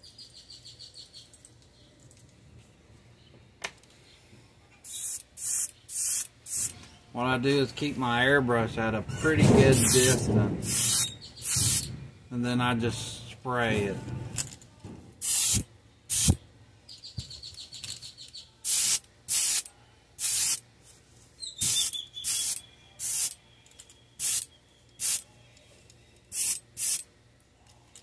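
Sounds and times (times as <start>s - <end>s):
airbrush spraying hiss: 4.9s - 6.8s, 9.8s - 11.9s, 15.2s - 16.4s, 18.6s - 20.6s, 21.6s - 23.4s, 26.3s - 27.0s.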